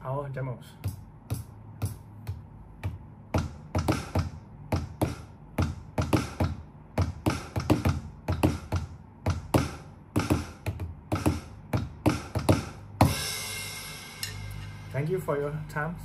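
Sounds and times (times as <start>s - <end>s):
drumsticks tapping on pads: 0.8s - 12.8s.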